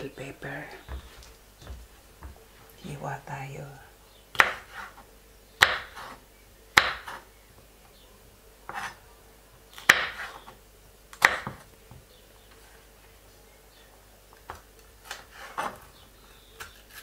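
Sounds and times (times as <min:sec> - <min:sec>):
knife chopping on wooden board: 0:04.3 - 0:05.0, 0:05.6 - 0:06.2, 0:06.8 - 0:07.3, 0:08.7 - 0:09.0, 0:09.8 - 0:10.5, 0:11.2 - 0:11.6.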